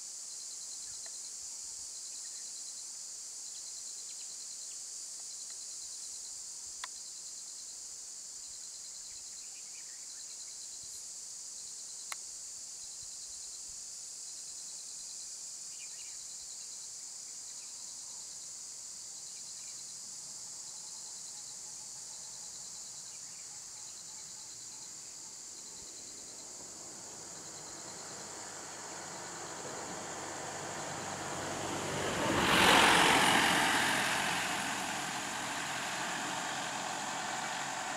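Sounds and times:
insects chorus: 0:00.0 - 0:37.9
motor vehicle approaching: 0:26.2 - 0:37.9.

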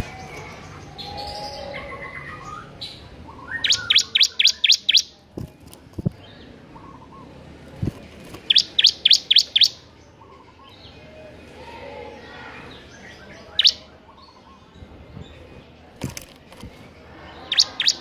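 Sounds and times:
bird twittering: 0:01.0 - 0:05.2, 0:08.4 - 0:09.9, 0:13.4 - 0:14.6, 0:17.5 - 0:18.0
bird singing sharp high notes: 0:03.4 - 0:05.1, 0:08.5 - 0:09.8, 0:13.5 - 0:13.9, 0:17.5 - 0:18.0.

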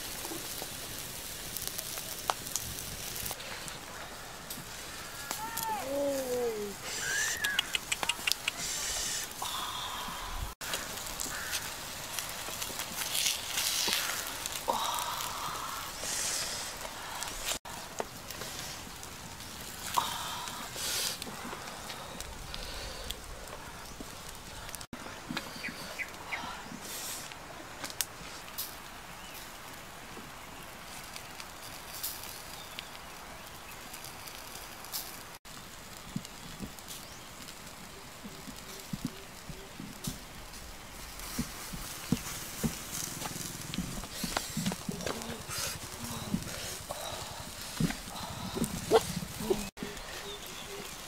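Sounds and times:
steady grill hiss: 0:00.0 - 0:51.0
light clicks and crackles: 0:00.1 - 0:06.6, 0:07.4 - 0:08.7, 0:10.6 - 0:26.2, 0:26.8 - 0:51.0
high animal call: 0:05.0 - 0:09.3.

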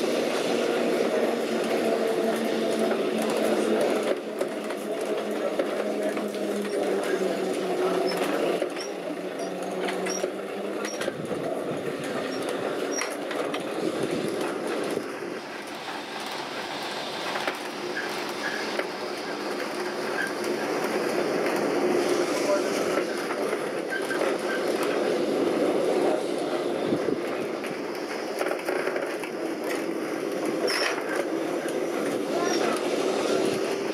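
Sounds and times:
tram rattling on rails: 0:00.0 - 0:33.9.

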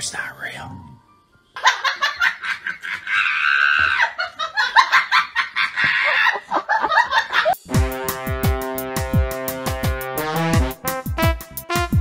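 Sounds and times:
person laughing hard: 0:01.6 - 0:07.6.

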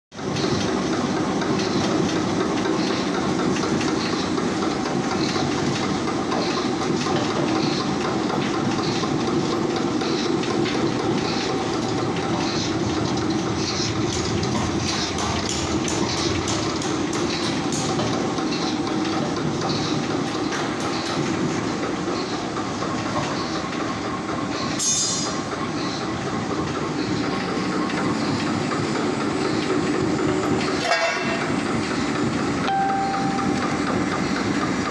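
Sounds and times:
machine droning with regular beat: 0:00.2 - 0:24.5, 0:31.4 - 0:34.9
brief sharp high-pitched sound: 0:32.7 - 0:34.0.

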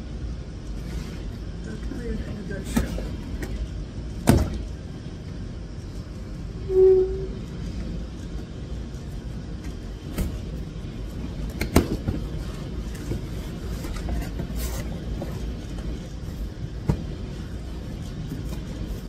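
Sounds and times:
low steady rumble: 0:00.0 - 0:19.0.

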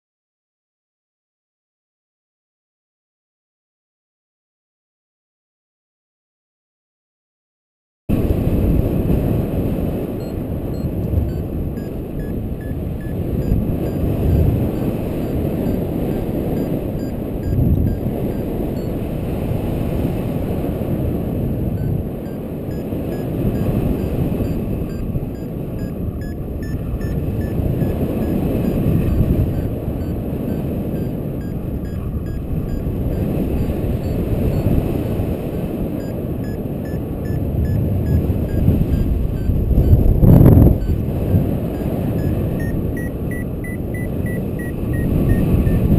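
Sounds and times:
wind rushing over microphone: 0:08.1 - 0:45.9
rapid electronic beeping: 0:10.2 - 0:18.9, 0:21.8 - 0:34.7, 0:36.0 - 0:40.0, 0:40.6 - 0:45.9.

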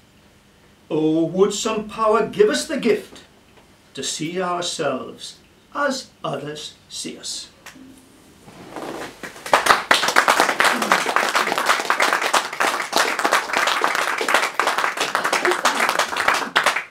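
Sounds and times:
audience applause: 0:09.2 - 0:16.9.

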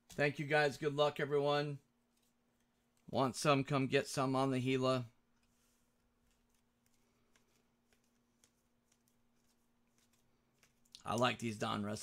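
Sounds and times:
cards and wrappers ticking: 0:06.2 - 0:12.0.

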